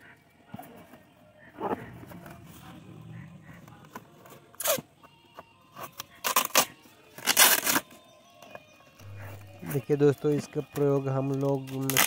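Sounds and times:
packing tape ripping off box: 4.6 - 4.8, 5.8 - 8.0, 11.7 - 12.0.

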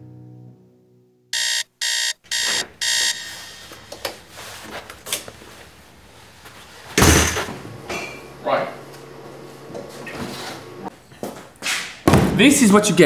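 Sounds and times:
electronic alarm clock beeping: 1.4 - 3.7
faint footsteps: 2.3 - 7.0.

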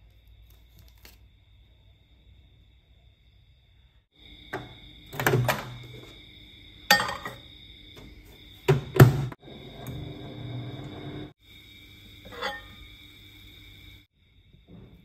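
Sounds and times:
microwave door shutting: 4.6 - 6.0, 8.7 - 9.4
plate clinking and knocking: 6.9 - 7.4, 12.3 - 12.8.

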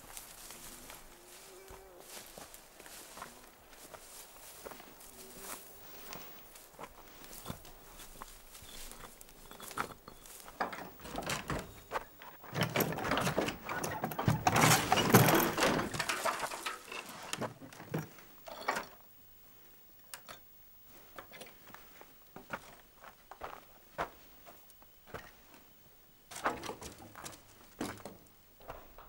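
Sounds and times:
footsteps: 0.0 - 19.7, 20.9 - 25.7
rustling and scraping: 4.1 - 19.0.

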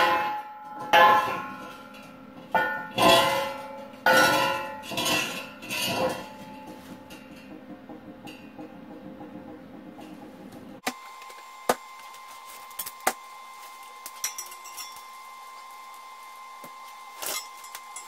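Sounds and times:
steel plate clanging on concrete: 0.0 - 10.2, 14.2 - 15.1
metal knocks: 0.0 - 10.8.

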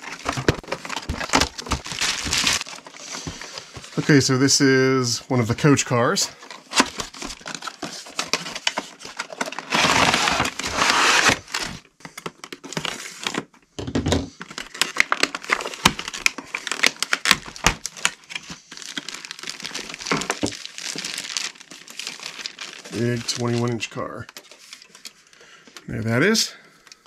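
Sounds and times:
plastic bag crinkling: 0.0 - 4.0, 14.4 - 25.2.

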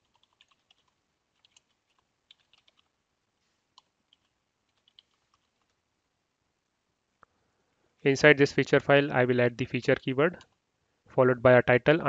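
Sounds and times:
keyboard typing: 0.0 - 2.9, 3.8 - 5.8.

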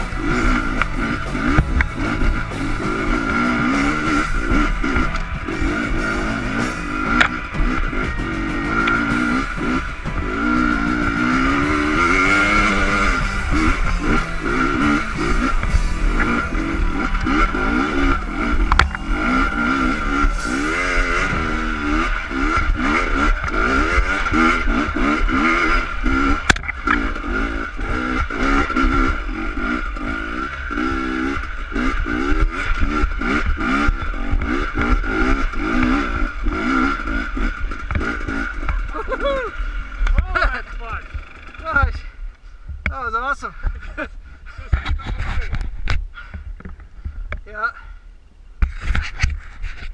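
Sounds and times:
dirt bike engine revving: 0.0 - 42.2.

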